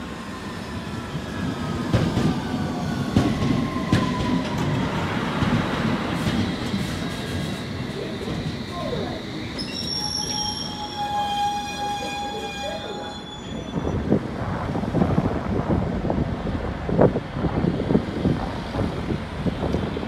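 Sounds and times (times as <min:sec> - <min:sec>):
low rumble of trains: 0:00.0 - 0:20.0
train high whining tones: 0:06.2 - 0:14.2
wind buffeting microphone: 0:12.4 - 0:20.0.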